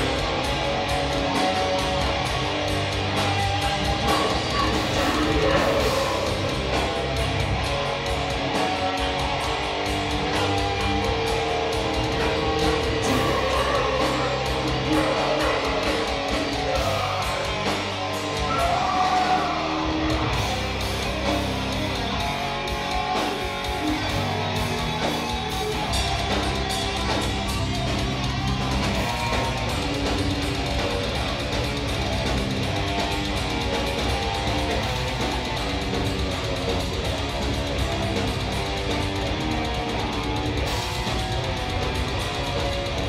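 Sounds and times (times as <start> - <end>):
live metal band playing: 0.0 - 43.0
person singing: 3.8 - 6.5, 12.2 - 20.2.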